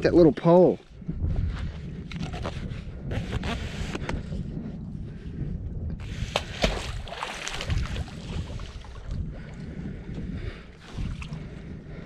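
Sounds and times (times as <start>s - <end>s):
wind rumble on microphone: 0.0s - 12.0s
magnet splashing into water: 6.3s - 8.5s.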